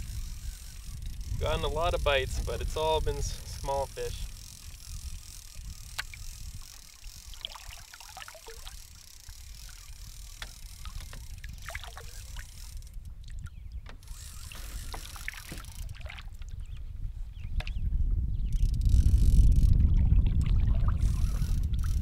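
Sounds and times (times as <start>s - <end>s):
wind rumble on microphone: 0.0s - 22.0s
waves lapping against canoe: 5.9s - 16.8s.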